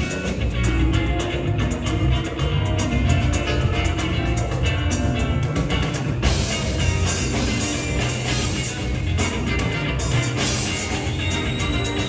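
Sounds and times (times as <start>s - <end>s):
live dance band playing: 0.0s - 12.0s.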